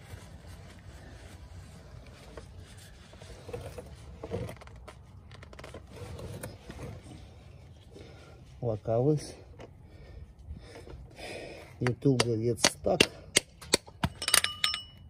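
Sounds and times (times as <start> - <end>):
rustling of shop rag: 0.0 - 9.3
low steady background rumble: 0.0 - 15.0.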